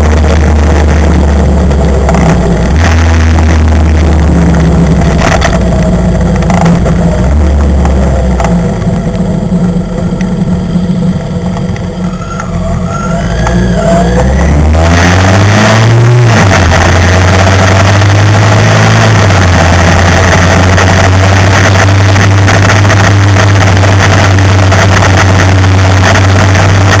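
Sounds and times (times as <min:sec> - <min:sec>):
motorcycle engine running: 0:00.0 - 0:27.0
wind noise on microphone: 0:13.2 - 0:27.0.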